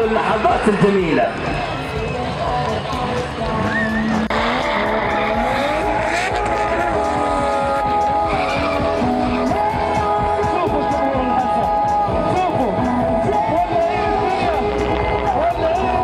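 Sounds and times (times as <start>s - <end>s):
music: 0.0s - 16.0s
car engine revving high: 1.4s - 10.2s, 13.4s - 16.0s.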